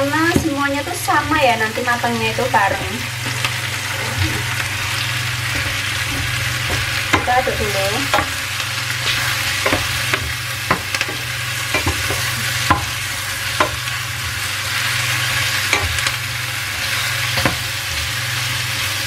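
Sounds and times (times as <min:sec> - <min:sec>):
mushrooms sizzling in oil: 0:00.0 - 0:19.0
spatula scraping a pan: 0:04.4 - 0:18.7.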